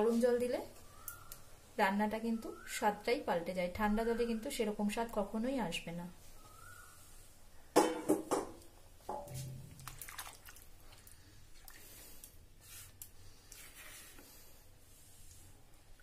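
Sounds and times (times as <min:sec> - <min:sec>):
wet squelching of potatoes in gravy: 0:09.4 - 0:14.2.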